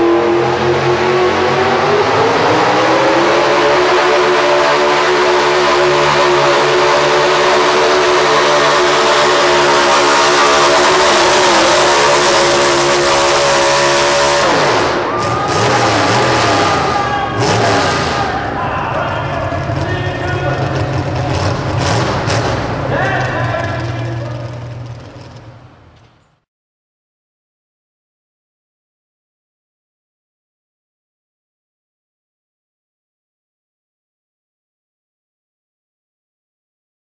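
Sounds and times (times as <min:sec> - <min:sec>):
high whine: 0:00.0 - 0:21.8
truck engine revving hard: 0:00.0 - 0:25.9.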